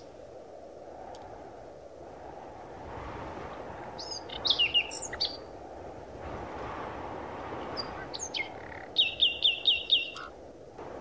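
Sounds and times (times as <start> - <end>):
birds singing: 4.0 - 5.5, 7.7 - 10.3.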